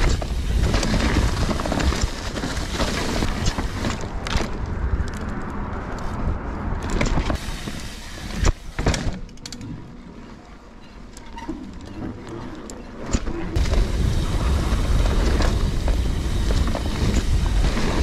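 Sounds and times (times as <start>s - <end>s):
bike knocks and rattles: 0.0s - 5.4s, 6.8s - 9.8s, 12.9s - 18.0s
tyres rolling on dirt: 0.0s - 18.0s
wind rushing over microphone: 13.6s - 18.0s.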